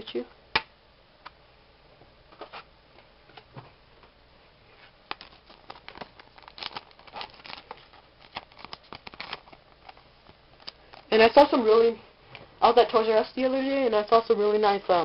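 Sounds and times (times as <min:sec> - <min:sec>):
cards rustling and clicking: 0:04.8 - 0:11.1.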